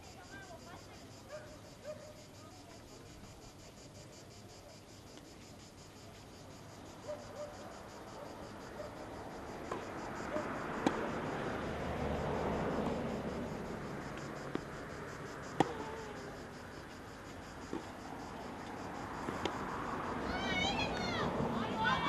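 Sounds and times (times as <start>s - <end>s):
tennis ball struck: 9.7s - 9.9s, 10.8s - 11.3s, 15.5s - 16.0s, 17.7s - 17.9s, 19.2s - 19.6s.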